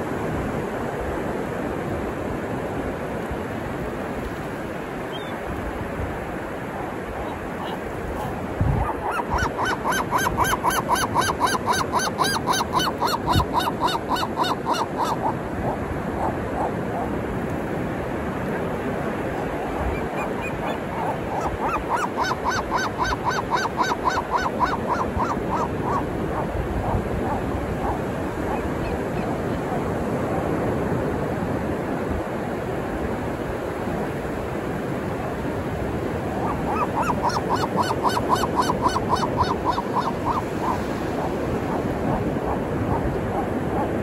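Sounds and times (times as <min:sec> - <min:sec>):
ocean surf: 0:00.0 - 0:44.0
seagull calling: 0:06.8 - 0:17.1, 0:19.9 - 0:29.8, 0:36.4 - 0:44.0.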